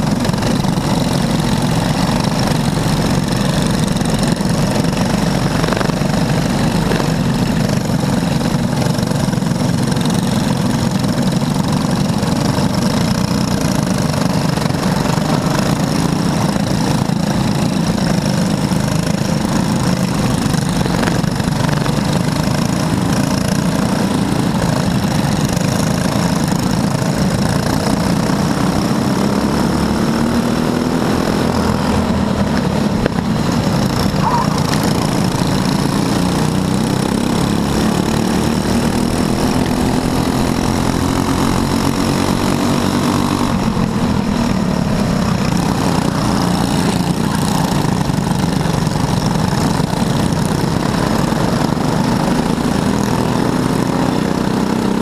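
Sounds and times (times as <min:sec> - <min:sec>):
go-kart engines droning: 0:00.0 - 0:55.0.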